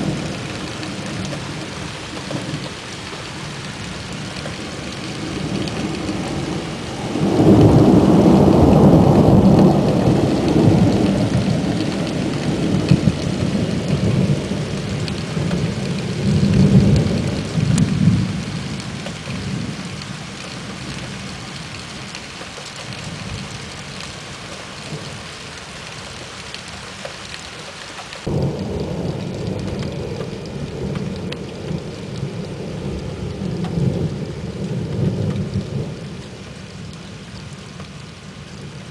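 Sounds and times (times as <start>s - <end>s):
steady rain: 0.0s - 38.9s
rolling thunder: 4.4s - 19.9s, 28.2s - 36.9s.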